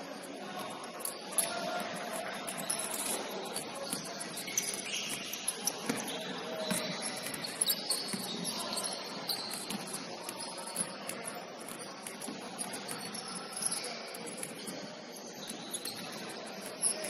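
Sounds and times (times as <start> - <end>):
sneaker squeaks: 0.0 - 17.0
basketballs bouncing on floor: 1.4 - 13.8.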